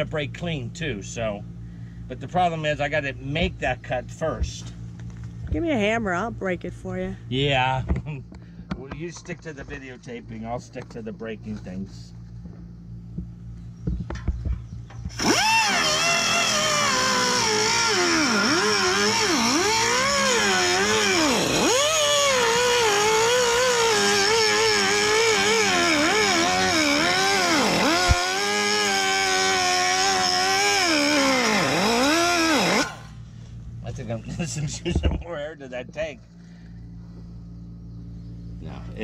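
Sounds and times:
pneumatic cutter whining: 0:14.1 - 0:33.2.

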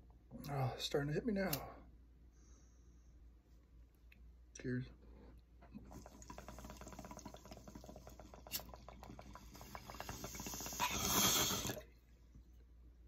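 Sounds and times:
water bubbling in a bong: 0:05.7 - 0:12.1.

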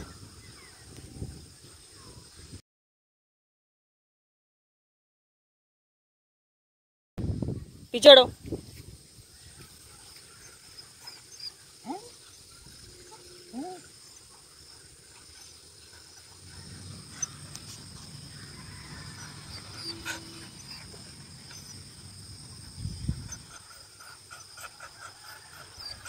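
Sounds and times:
dog whining: 0:19.1 - 0:21.8.

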